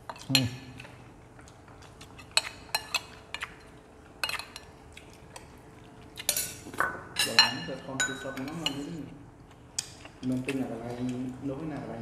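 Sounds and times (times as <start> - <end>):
spoons clinking on ceramic bowls: 6.2 - 8.9.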